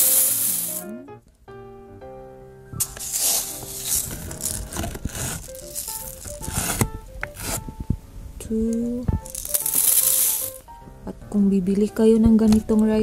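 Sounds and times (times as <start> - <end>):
rice grains rustling: 0.0 - 0.9, 2.8 - 6.9, 9.2 - 10.7
background music: 0.0 - 13.0.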